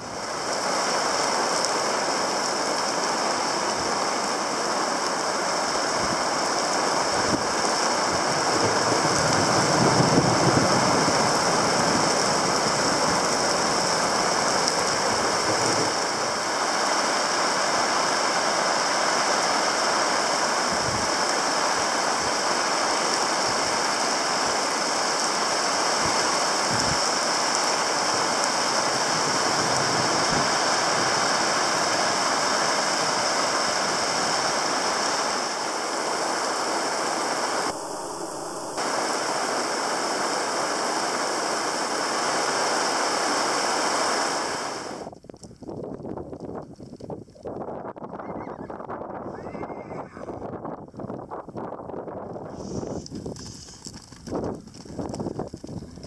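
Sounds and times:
rain falling: 0:00.0 - 0:48.4, 0:52.4 - 0:56.0
wind: 0:00.0 - 0:56.0
wind thumps on microphone: 0:08.4 - 0:12.0, 0:45.0 - 0:56.0.

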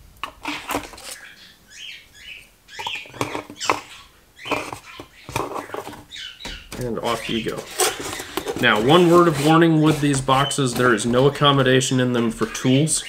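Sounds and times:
parts sliding into foam slots: 0:06.8 - 0:11.6.

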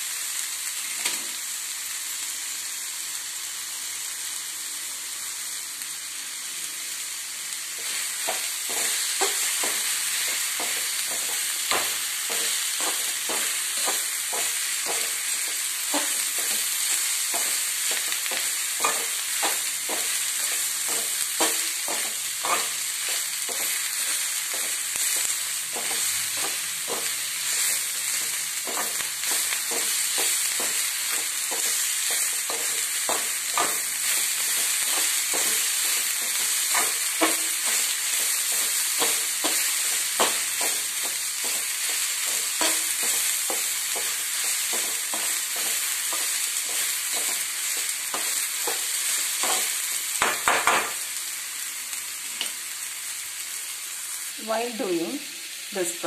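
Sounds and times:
food sizzling in hot oil: 0:00.0 - 0:56.0
metal spatula scraping a pan: 0:08.3 - 0:50.0.

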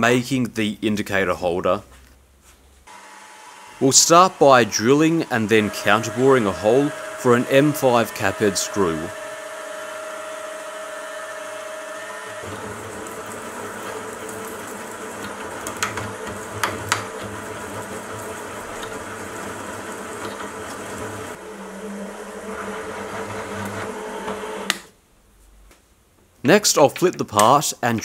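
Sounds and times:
counterbore cutting metal: 0:02.9 - 0:21.4
milling machine drilling metal: 0:02.9 - 0:24.8.

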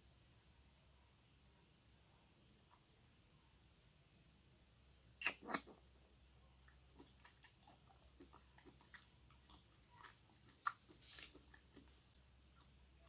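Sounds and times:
quiet chewing with soft clicks: 0:06.5 - 0:13.0.

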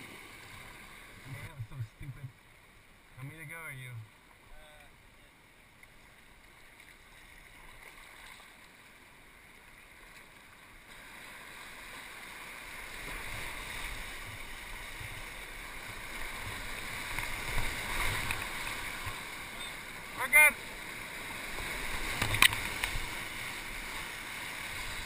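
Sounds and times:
rushing whitewater: 0:00.0 - 0:25.0
heavy water splashing over kayak: 0:10.8 - 0:25.0.

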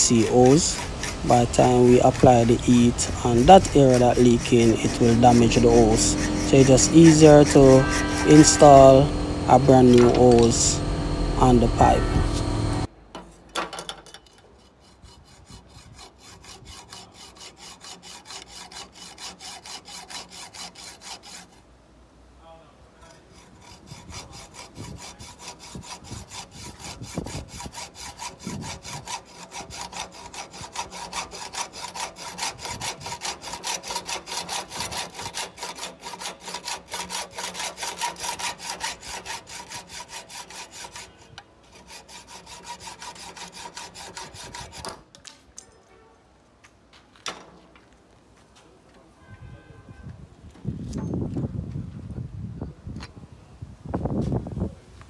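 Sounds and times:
hacksaw cutting metal pipe: 0:00.0 - 0:12.9, 0:14.1 - 0:21.6, 0:23.1 - 0:45.0.

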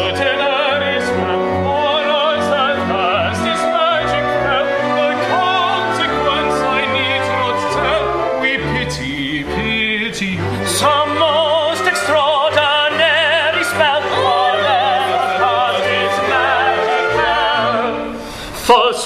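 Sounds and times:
man singing: 0:00.0 - 0:14.6, 0:18.6 - 0:19.0
orchestra playing: 0:00.0 - 0:18.9
soprano singing: 0:00.0 - 0:19.0.

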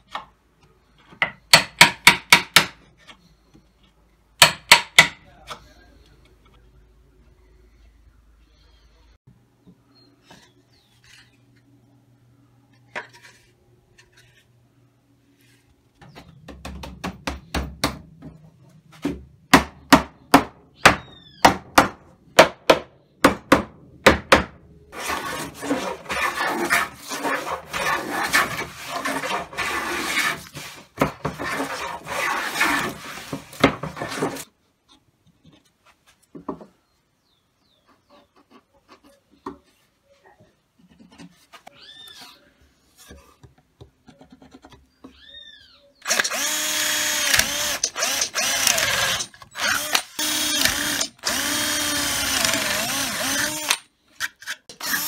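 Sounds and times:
hand plane shaving wood: 0:24.9 - 0:34.4.

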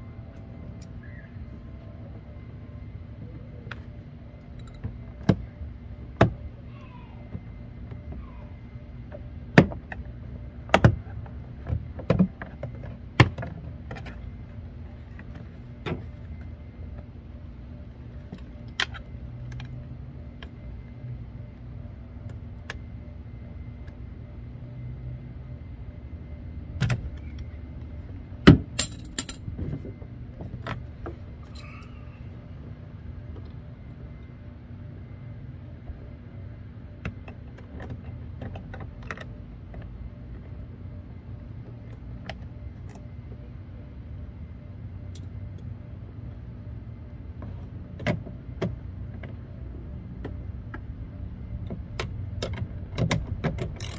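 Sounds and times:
hand tools clicking and clinking: 0:28.8 - 0:29.4.

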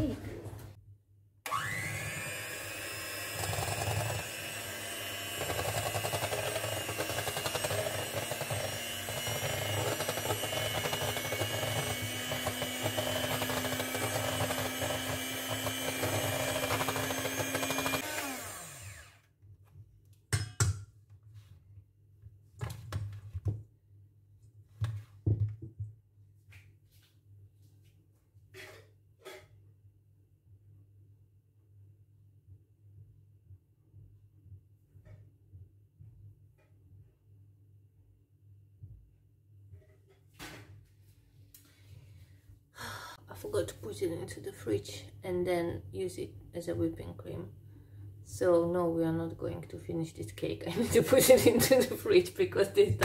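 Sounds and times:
electric hand mixer whining: 0:01.5 - 0:19.3.

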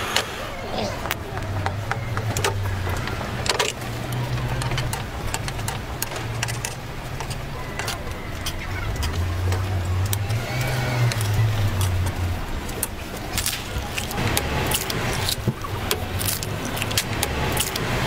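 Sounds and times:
motor humming: 0:00.0 - 0:18.0.

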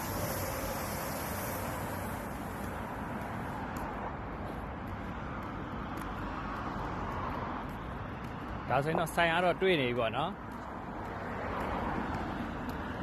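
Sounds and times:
road traffic rumble: 0:00.0 - 0:13.0
faint light ticks: 0:10.5 - 0:12.9.

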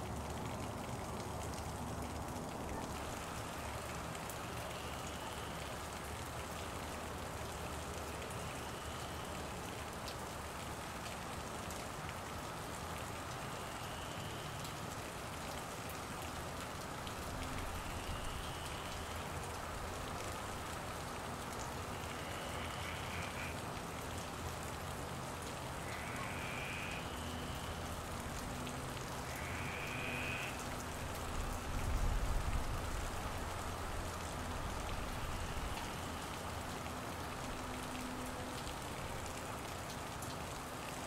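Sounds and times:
steady rain falling: 0:00.0 - 0:41.0.

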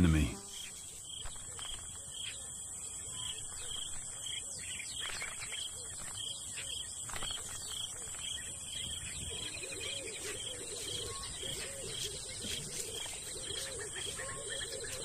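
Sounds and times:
high insect drone: 0:00.0 - 0:09.0
cooing bird calls: 0:01.2 - 0:15.0.

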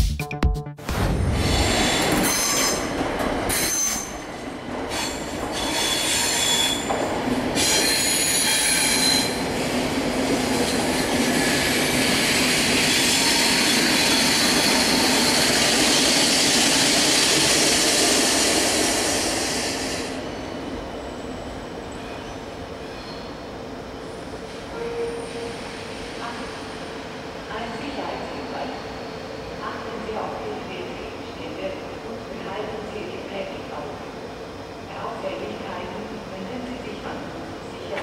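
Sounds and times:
train wheels squealing: 0:01.8 - 0:04.3, 0:04.9 - 0:07.0, 0:07.6 - 0:09.5, 0:12.2 - 0:20.1, 0:21.9 - 0:23.4, 0:27.8 - 0:29.6
train rolling hiss: 0:11.7 - 0:20.2.

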